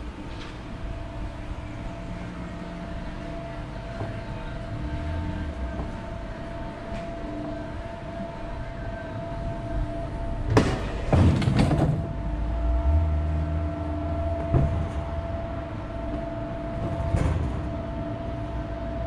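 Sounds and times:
whining hum: 0.0 - 19.0.

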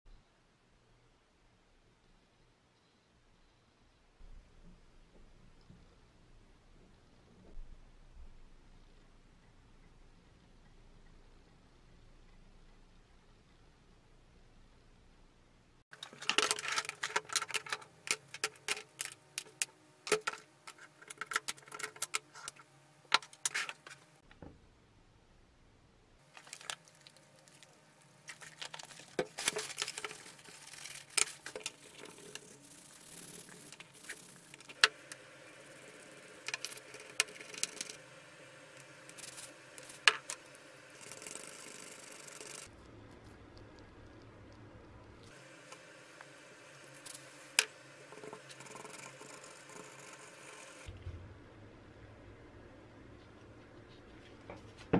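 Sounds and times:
wire brush scrubbing metal: 29.0 - 38.2.

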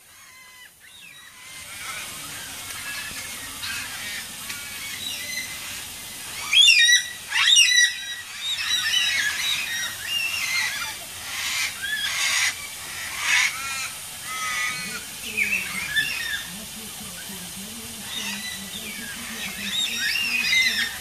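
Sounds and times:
cockatoos calling: 0.0 - 21.0.

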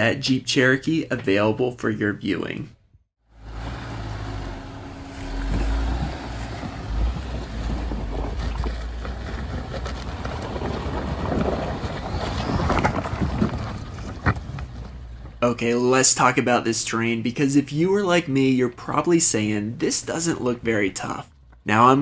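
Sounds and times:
vehicle engine running: 3.3 - 10.7
wind rumble on microphone: 5.2 - 14.9
tyres crunching over rock: 5.2 - 15.4.

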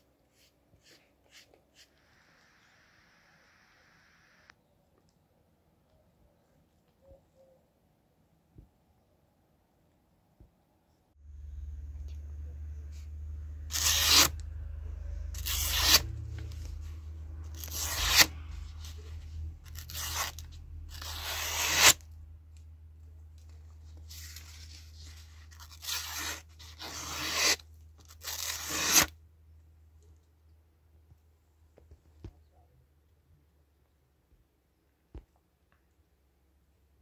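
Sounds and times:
knife slicing paper: 13.7 - 14.4, 15.2 - 16.8, 17.5 - 19.0, 19.7 - 22.0, 24.1 - 29.1.

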